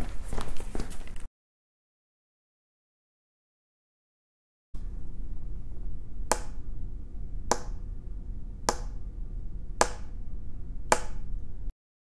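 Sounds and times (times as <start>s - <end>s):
steady low hum: 4.8s - 11.7s.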